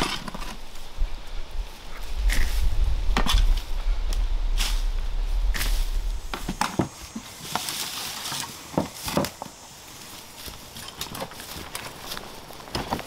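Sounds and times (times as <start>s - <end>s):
footsteps crunching on dry leaves: 0.5s - 13.0s
wheelbarrow knocking and rattling: 5.5s - 9.6s, 10.7s - 13.0s.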